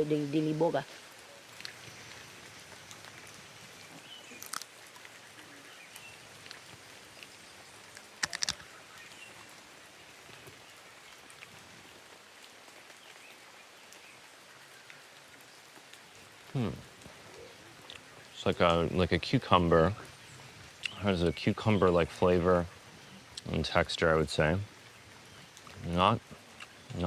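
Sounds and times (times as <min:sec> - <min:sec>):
light rain on foliage: 0:00.0 - 0:27.0
sharp clicks: 0:08.2 - 0:08.7.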